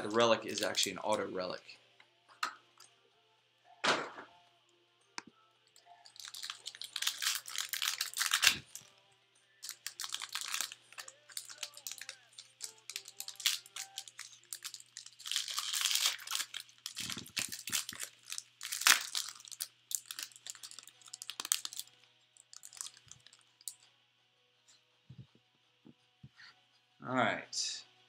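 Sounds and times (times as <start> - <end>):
plastic wrapper tearing and crinkling: 5.9 - 8.9, 9.6 - 23.8.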